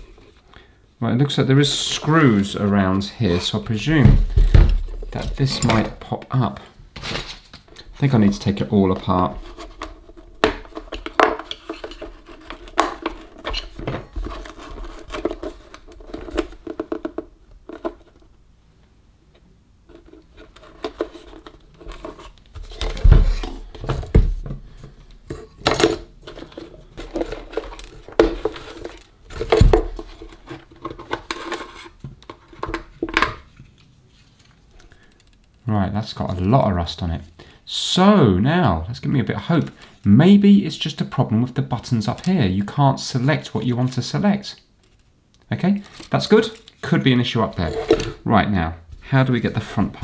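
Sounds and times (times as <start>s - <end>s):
metal tool scraping plastic: 7.0s - 18.2s, 47.5s - 48.2s.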